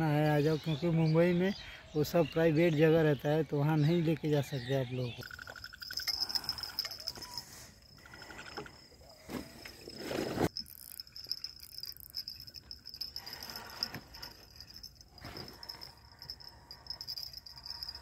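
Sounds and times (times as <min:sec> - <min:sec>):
crickets trilling: 0:03.7 - 0:18.0.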